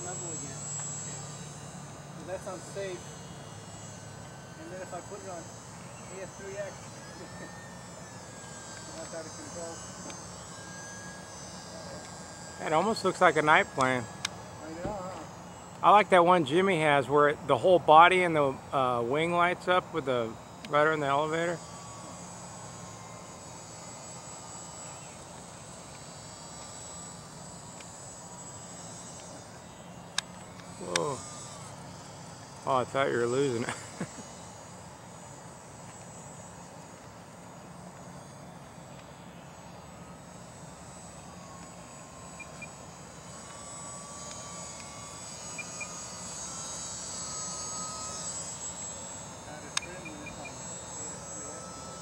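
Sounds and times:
model plane motor whine: 0:00.0 - 0:52.0
small electric propeller drone: 0:00.0 - 0:52.0
thin high tones: 0:41.2 - 0:52.0.

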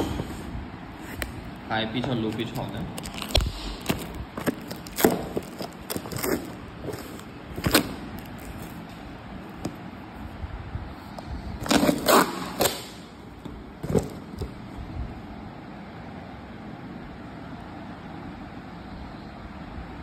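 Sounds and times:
cardboard boxes knocking and scraping: 0:13.8 - 0:14.5.

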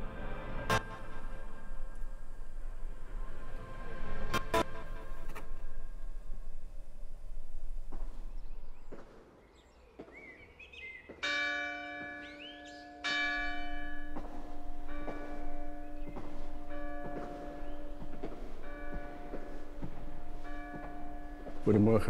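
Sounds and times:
church bell ringing: 0:11.2 - 0:22.0.

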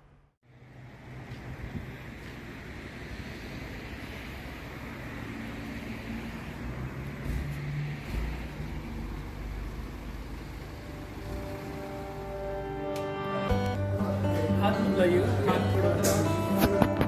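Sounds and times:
traffic hum: 0:00.0 - 0:17.0
background music: 0:11.3 - 0:17.0.

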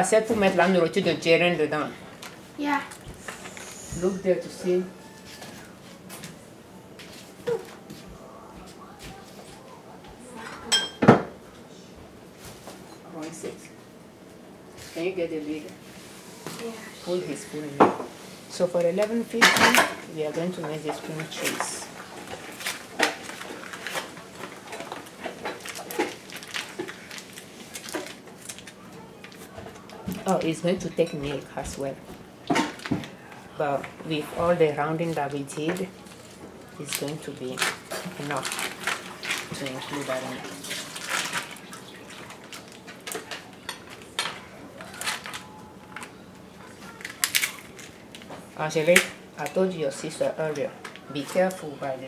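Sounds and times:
foil wrappers crinkling: 0:20.4 - 0:30.4, 0:34.9 - 0:49.2
packages being handled: 0:21.1 - 0:30.4, 0:35.0 - 0:48.4.

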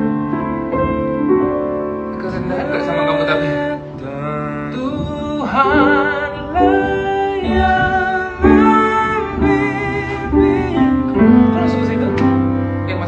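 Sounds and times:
instrumental accompaniment: 0:00.0 - 0:13.0
men singing a duet: 0:02.4 - 0:12.2.

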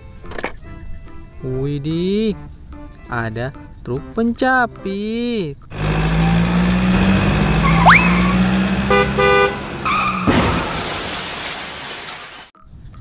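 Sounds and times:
cartoon engine hum: 0:05.7 - 0:10.2
rising whistle: 0:07.6 - 0:08.4
short horn toots: 0:07.6 - 0:09.6
cartoon crash-boom: 0:10.1 - 0:12.3.

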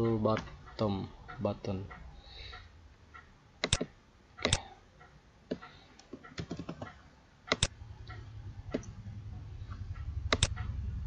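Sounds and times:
mouse double clicks: 0:03.6 - 0:04.6, 0:07.5 - 0:07.7, 0:10.3 - 0:10.5.

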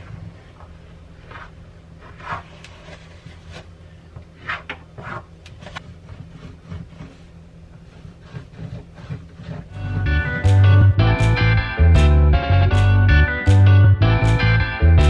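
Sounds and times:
low steady hum: 0:00.0 - 0:15.0
caulk rubbing and scraping: 0:04.3 - 0:10.5.

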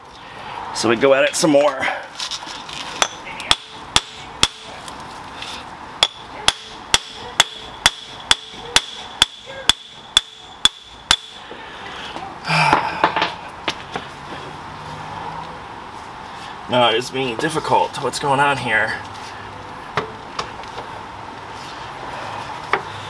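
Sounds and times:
hammer striking metal: 0:03.0 - 0:04.7, 0:06.0 - 0:11.4.

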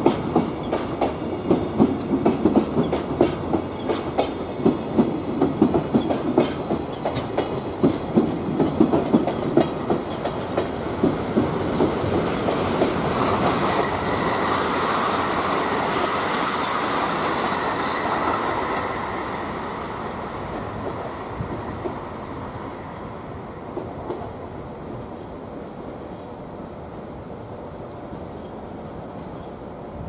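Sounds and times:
train wheels clacking over rail joints: 0:00.0 - 0:18.9
train rolling rumble: 0:00.0 - 0:30.0.

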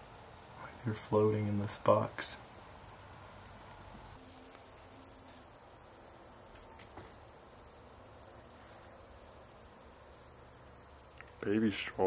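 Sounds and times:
high-pitched insect trill: 0:04.2 - 0:12.0
faint clicks: 0:11.1 - 0:11.5.

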